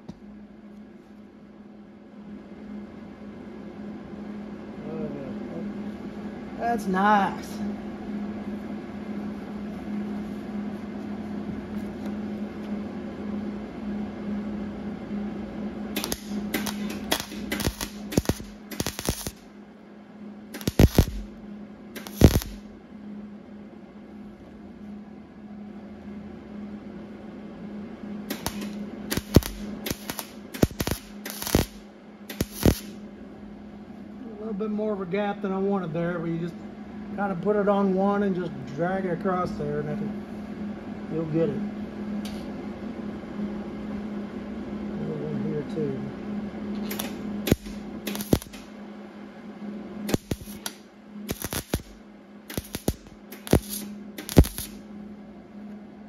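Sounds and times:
welder low hum: 0:00.0 - 0:56.0
welding arc crackling bursts: 0:15.9 - 0:19.5, 0:20.5 - 0:21.4, 0:22.0 - 0:22.7, 0:28.3 - 0:33.0, 0:46.8 - 0:48.7, 0:50.1 - 0:54.8.

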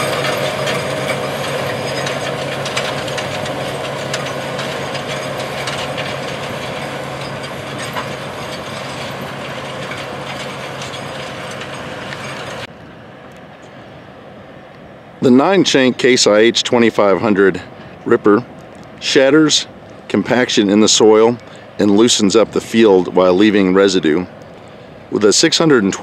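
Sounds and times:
tracks and ripper clanking: 0:00.0 - 0:12.7
tractor diesel engine under load: 0:00.0 - 0:12.7.

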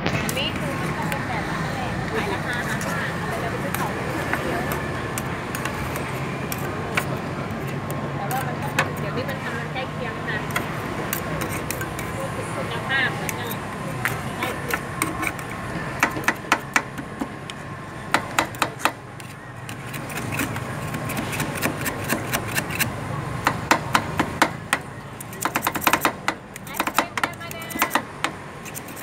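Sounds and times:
metal spatulas clacking on cold plate: 0:10.5 - 0:12.2, 0:25.2 - 0:29.0.

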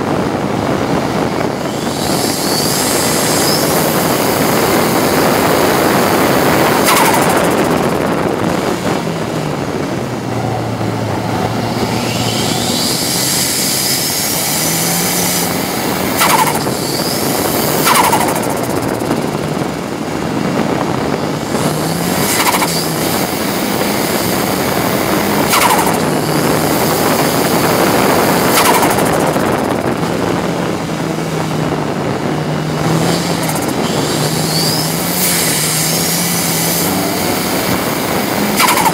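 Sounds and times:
race car engine revving: 0:00.0 - 0:38.9
road and wind noise: 0:00.0 - 0:38.9
short sharp bursts: 0:01.7 - 0:08.1, 0:12.0 - 0:19.5, 0:21.5 - 0:24.4, 0:25.2 - 0:29.8, 0:32.9 - 0:38.9.

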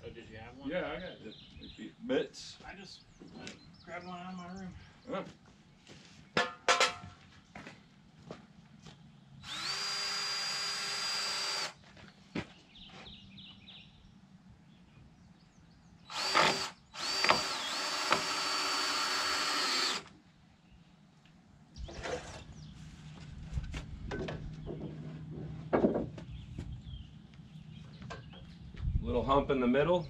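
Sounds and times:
power drill whining: 0:09.4 - 0:11.8, 0:16.1 - 0:20.1.

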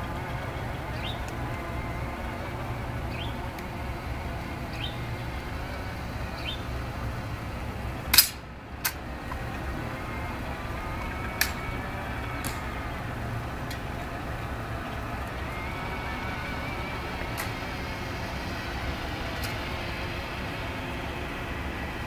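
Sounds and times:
faint rising bird chirp: 0:00.0 - 0:07.1
rifle snap: 0:08.1 - 0:09.0.

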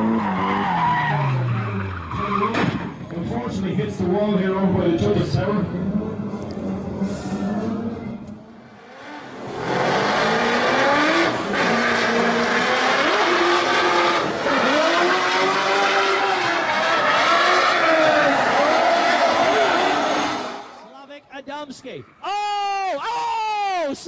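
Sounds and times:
car engine revving hard: 0:08.8 - 0:20.8.

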